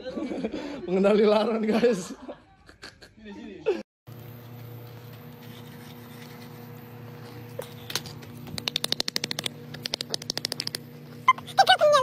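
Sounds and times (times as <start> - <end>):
steady low hum: 4.1 - 12.0.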